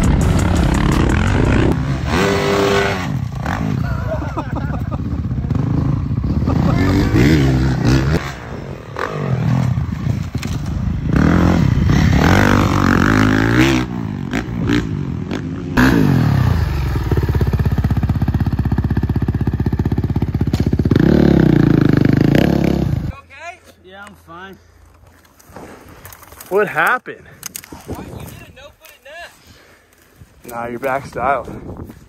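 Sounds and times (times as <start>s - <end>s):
dirt bike engines revving: 0.0s - 23.2s.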